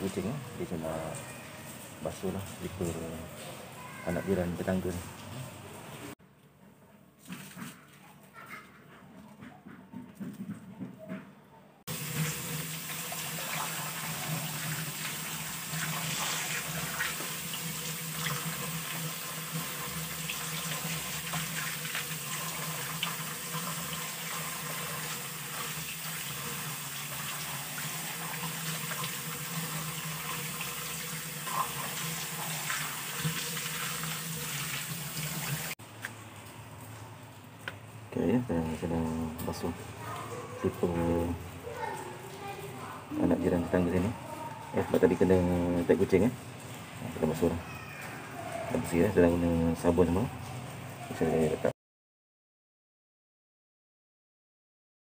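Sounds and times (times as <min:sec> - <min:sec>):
water gushing from hose: 0:00.0 - 0:06.2, 0:11.9 - 0:36.5, 0:40.5 - 0:51.7.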